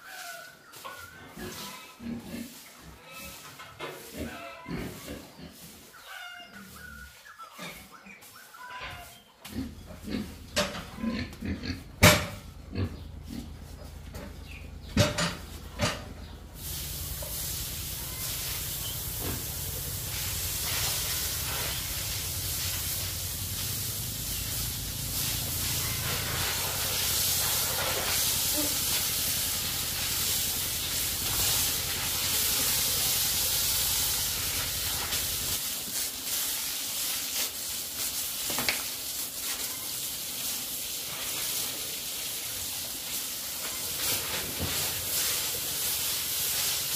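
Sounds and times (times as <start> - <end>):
pigs calling: 0.0 - 14.6
hose spraying water: 15.0 - 46.9.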